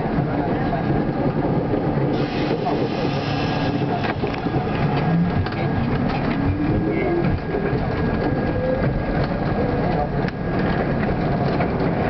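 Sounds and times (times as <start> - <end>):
train wheels rumbling on rail: 0.0 - 12.0
clacks and rattles: 4.0 - 12.0.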